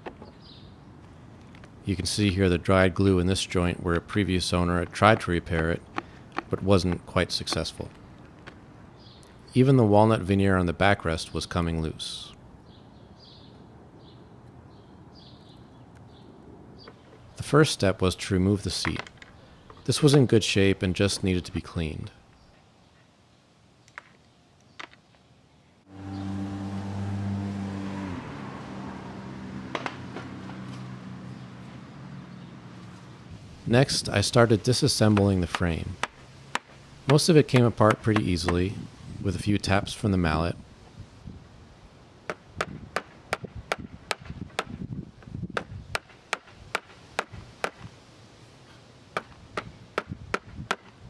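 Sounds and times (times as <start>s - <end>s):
motor humming: 25.9s - 29.4s
mallet tapping wood: 36.0s - 38.6s.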